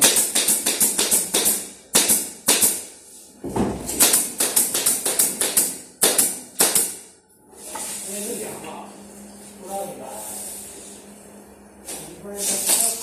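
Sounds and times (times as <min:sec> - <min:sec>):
pneumatic nail gun firing: 0:00.0 - 0:02.8, 0:03.9 - 0:07.0.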